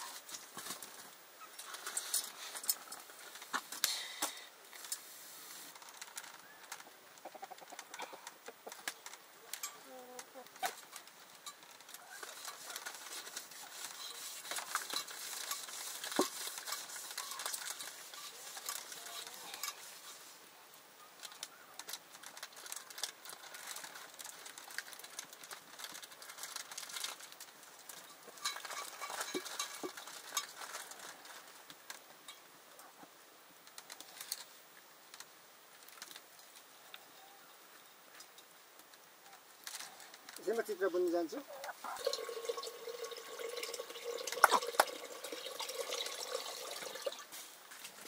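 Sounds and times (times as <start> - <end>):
faint hiss: 0.0 - 48.0
utensils stirring in a pot: 10.6 - 20.2, 42.0 - 47.3.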